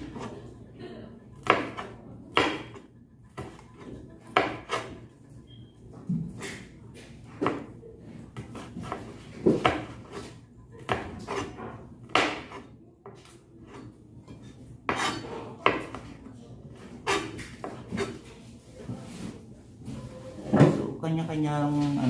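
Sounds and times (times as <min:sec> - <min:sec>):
knife chopping on cutting board: 0:01.4 - 0:05.0, 0:07.4 - 0:07.7, 0:08.4 - 0:16.1, 0:16.7 - 0:18.2.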